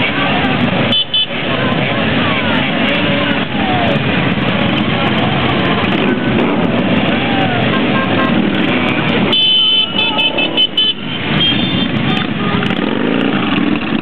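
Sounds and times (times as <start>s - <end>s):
motorcycles riding past: 0.0s - 14.0s
horn blast and toots: 8.5s - 13.2s.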